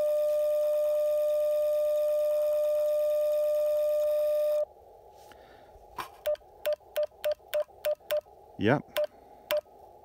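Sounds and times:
short beeps: 6.2s - 8.3s.

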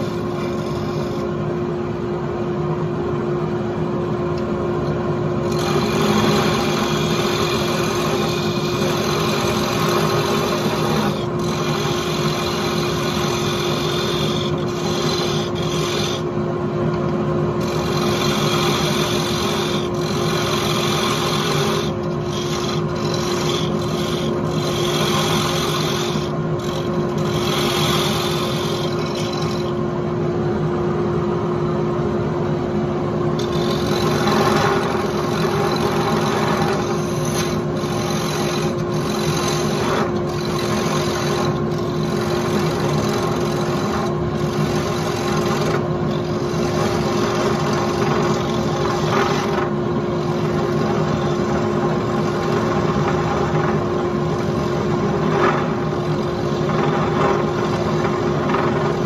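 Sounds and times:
wood lathe humming: 0.0s - 1.3s, 4.8s - 29.8s, 33.3s - 59.0s
tool scraping spinning wood: 0.0s - 1.5s, 4.8s - 30.0s, 33.2s - 59.0s.

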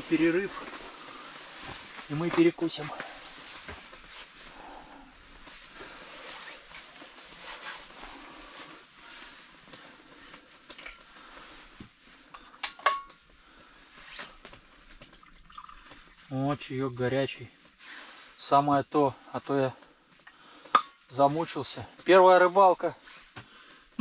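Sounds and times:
clothing rustling: 0.0s - 12.6s, 13.2s - 15.4s
faint steady hiss: 0.0s - 24.0s.

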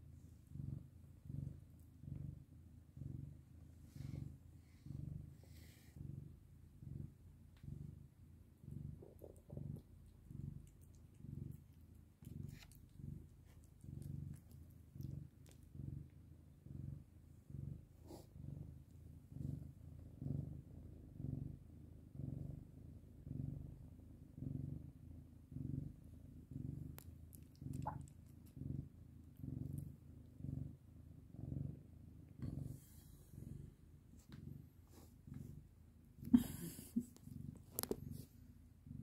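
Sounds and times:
cat purring: 0.0s - 39.0s.

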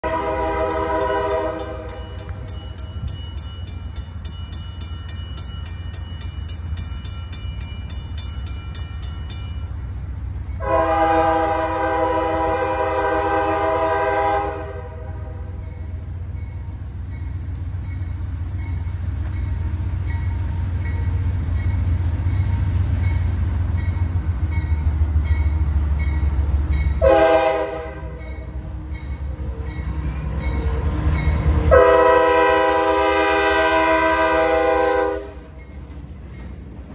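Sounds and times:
locomotive air horn blasts: 0.0s - 2.0s, 10.6s - 15.6s, 27.0s - 28.3s, 31.7s - 35.6s
locomotive low rumble: 0.0s - 36.9s.

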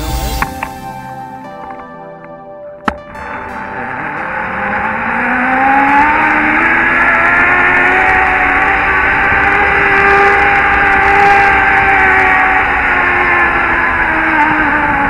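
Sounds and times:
zipline pulleys whining on cable: 4.6s - 15.0s.

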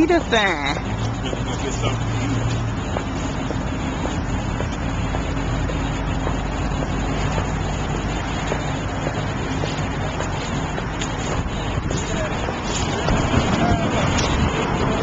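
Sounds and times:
passing cars: 0.0s - 15.0s
footsteps on asphalt: 0.8s - 15.0s
wind rumbling on microphone: 3.6s - 15.0s.

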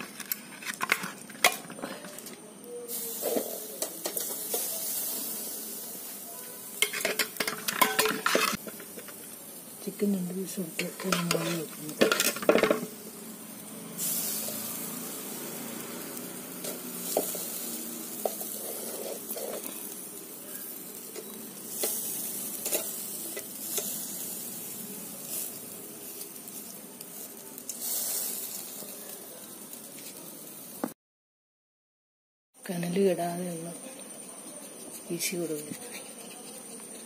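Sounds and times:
chicken sizzling on a grill: 0.0s - 31.0s, 32.6s - 37.0s
metal knife clicking on grill: 21.0s - 24.1s.

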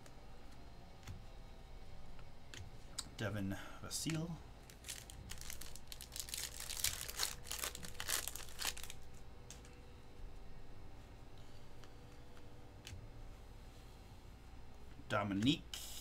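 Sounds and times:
wrapper crinkling and tearing: 4.7s - 9.1s.

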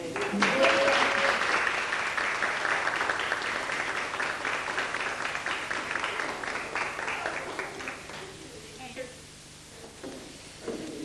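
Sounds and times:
audience applause: 0.0s - 8.7s.

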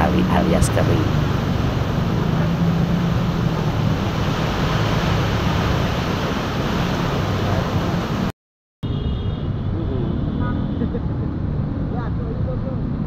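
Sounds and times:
heavy rain pouring: 0.0s - 8.3s
traffic hum on wet road: 0.0s - 8.3s, 8.9s - 13.0s.

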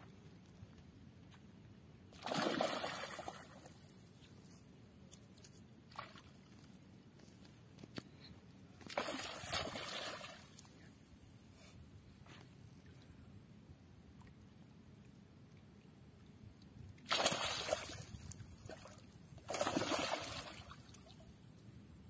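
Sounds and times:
fish splashing in water: 17.1s - 18.0s.

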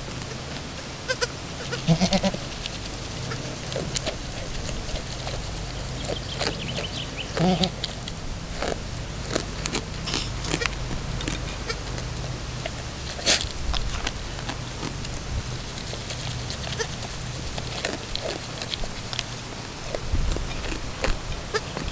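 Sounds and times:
goat bleating: 1.1s - 2.5s, 3.2s - 4.1s, 6.1s - 7.9s, 10.1s - 11.9s, 16.2s - 17.1s, 21.5s - 21.9s.

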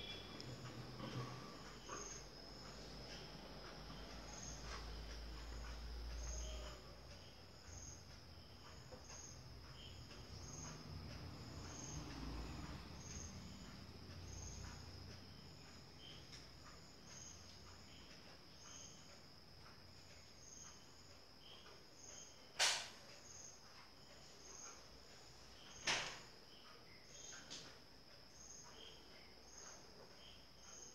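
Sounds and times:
faint high-pitched whine: 0.0s - 30.9s
sharp click: 22.6s - 23.0s.

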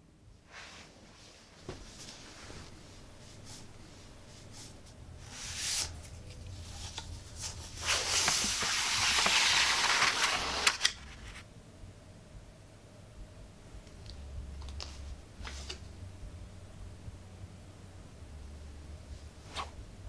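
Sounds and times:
paper rustling: 5.2s - 11.4s.

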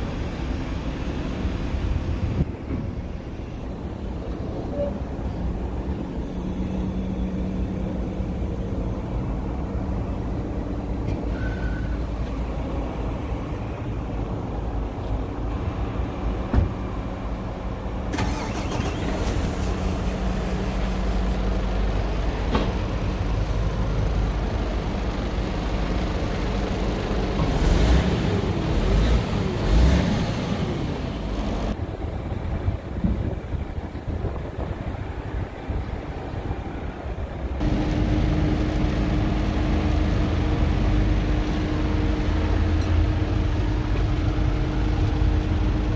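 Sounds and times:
diesel engine idling: 0.0s - 27.4s.

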